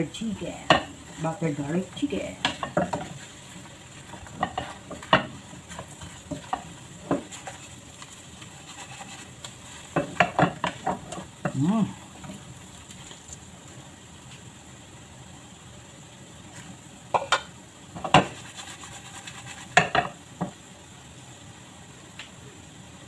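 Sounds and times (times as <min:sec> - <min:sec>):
food sizzling in a pan: 0:00.0 - 0:23.0
spoon scraping pan: 0:00.2 - 0:11.6, 0:18.0 - 0:20.2
wooden spoon knocking on pan: 0:00.6 - 0:00.9, 0:02.3 - 0:03.3, 0:04.1 - 0:07.7, 0:09.9 - 0:11.6, 0:17.1 - 0:18.4, 0:19.7 - 0:20.6.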